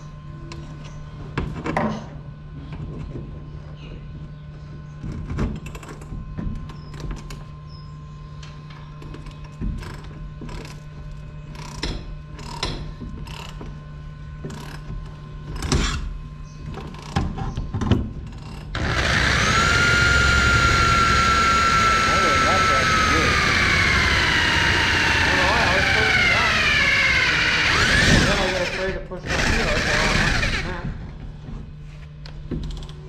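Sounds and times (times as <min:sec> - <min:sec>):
electric drill drilling into steel: 0:18.8 - 0:30.8.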